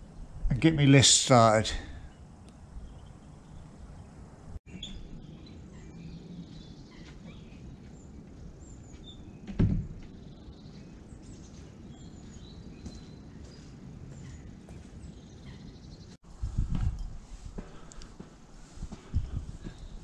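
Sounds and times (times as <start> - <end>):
small birds chirping: 2.0 - 16.2, 19.0 - 20.0
wooden door thump: 9.5 - 10.0.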